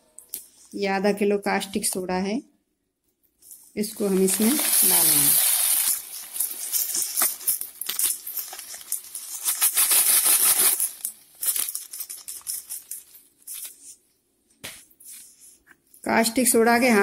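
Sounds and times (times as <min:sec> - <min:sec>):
plastic bag crinkling: 0:03.6 - 0:14.0
granules pouring into bucket: 0:03.9 - 0:12.1.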